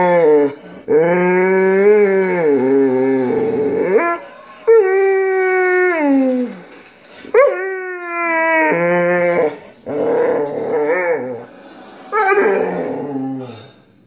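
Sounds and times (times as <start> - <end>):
dog howling: 0.0 - 6.6, 7.4 - 11.5.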